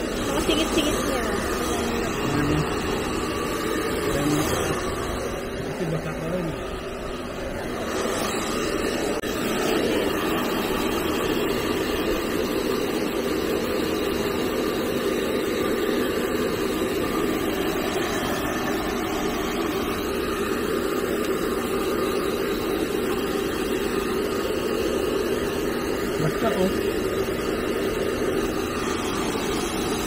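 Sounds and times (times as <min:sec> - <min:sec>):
hair dryer blowing: 0:00.0 - 0:30.0.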